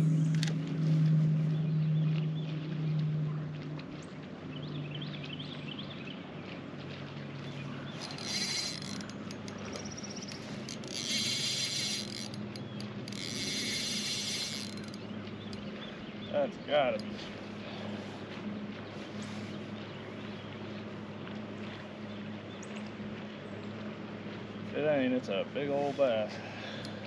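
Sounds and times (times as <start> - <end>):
fishing reel gears whirring: 0.0 - 1.2, 7.9 - 15.9
low steady hum: 0.0 - 27.0.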